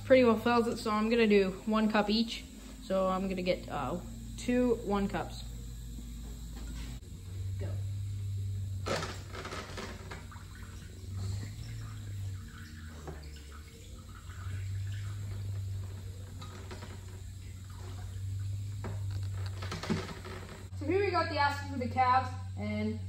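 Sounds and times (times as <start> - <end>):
low hum: 0.0 - 23.0
liquid trickling into cup: 10.0 - 19.6.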